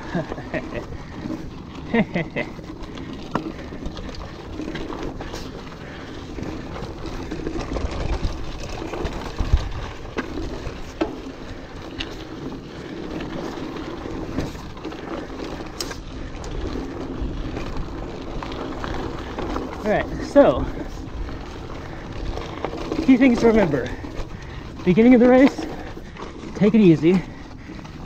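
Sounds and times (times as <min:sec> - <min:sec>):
bike rattling: 0:00.0 - 0:28.0
bike tyres crunching over gravel: 0:00.0 - 0:28.0
wind rumble on microphone: 0:03.3 - 0:11.0.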